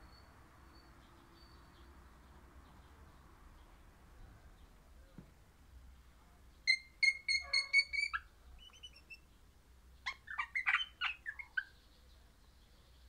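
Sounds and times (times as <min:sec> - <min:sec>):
parrot whistling and chattering: 0:06.7 - 0:09.2, 0:10.0 - 0:11.7.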